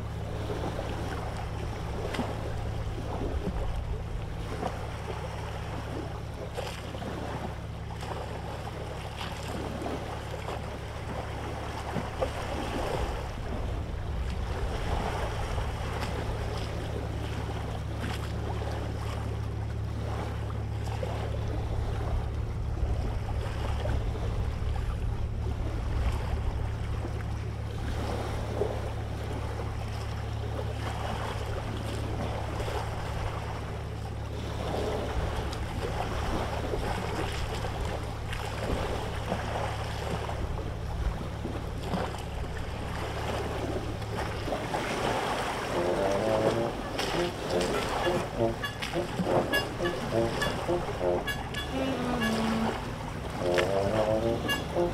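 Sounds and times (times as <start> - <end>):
boat engine drone: 0.0 - 54.9
wind and sea rushing: 0.0 - 54.9.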